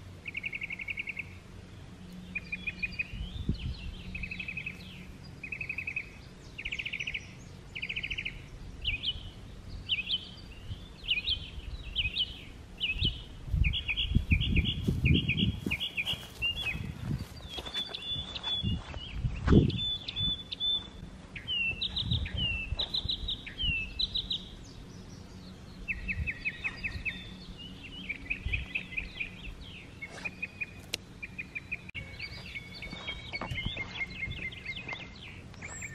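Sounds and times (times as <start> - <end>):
songbirds singing: 0.0 - 35.9
rustling and footsteps in grass: 12.2 - 24.1, 25.9 - 35.9.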